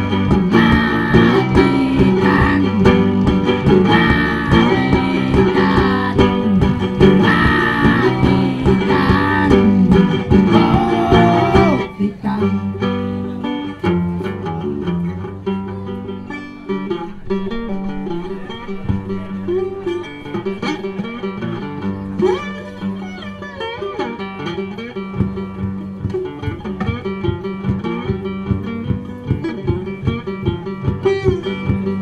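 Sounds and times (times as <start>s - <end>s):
acoustic guitar playing: 0.0s - 32.0s
man singing into a microphone: 7.2s - 12.9s.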